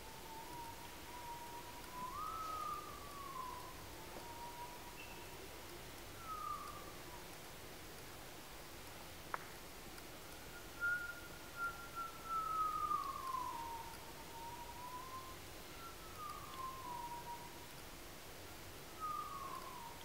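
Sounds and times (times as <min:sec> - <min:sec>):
high whistled tone sliding downward: 0:00.3 - 0:05.3, 0:10.8 - 0:17.6
faint click: 0:00.5 - 0:01.0, 0:01.8 - 0:08.1, 0:08.8 - 0:11.0, 0:13.0 - 0:15.1, 0:16.1 - 0:17.9, 0:19.4 - 0:19.9.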